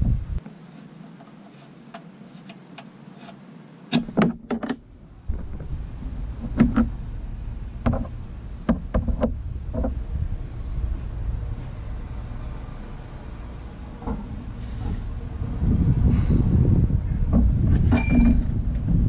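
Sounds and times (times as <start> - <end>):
low steady rumble: 0.0 - 0.4, 4.0 - 19.0.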